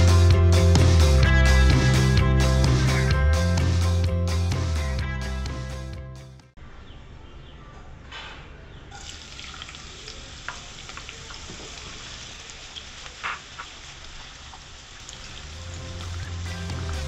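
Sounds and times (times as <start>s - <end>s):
onions sizzling in hot oil: 9.0s - 17.0s.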